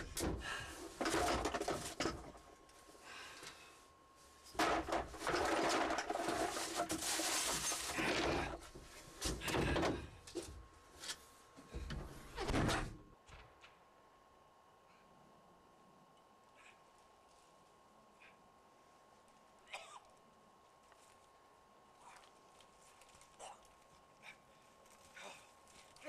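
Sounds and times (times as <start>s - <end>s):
objects rummaged and clattering: 0.0s - 3.6s, 4.3s - 12.9s
rustling: 4.2s - 9.1s, 20.7s - 26.0s.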